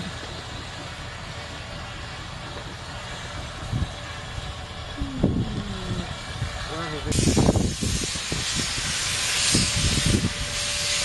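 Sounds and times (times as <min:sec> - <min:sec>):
steam train rumbling with hiss: 0:00.0 - 0:11.0.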